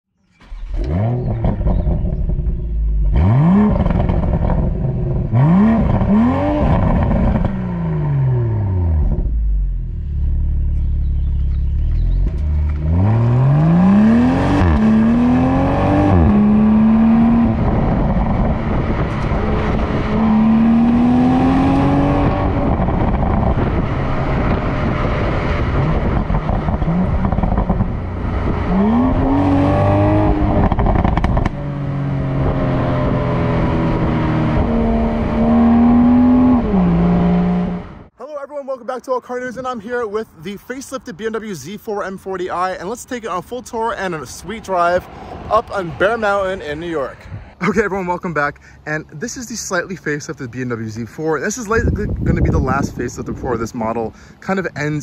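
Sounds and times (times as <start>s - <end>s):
car engine revving and accelerating: 0.4s - 38.1s.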